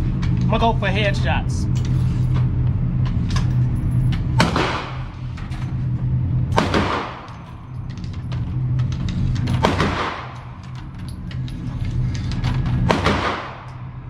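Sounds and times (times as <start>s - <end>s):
steady low hum: 0.0s - 14.0s
rifle shots with long echo: 4.4s - 5.2s, 6.5s - 7.3s, 9.6s - 10.4s, 12.9s - 13.9s.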